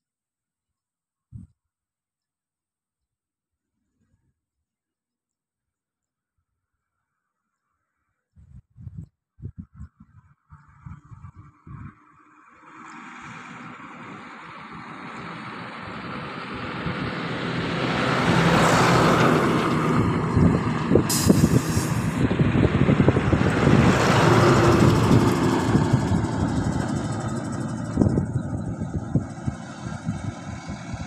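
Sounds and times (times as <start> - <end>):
vehicle engine running: 13.5 - 31.0
short hiss: 21.1 - 22.2.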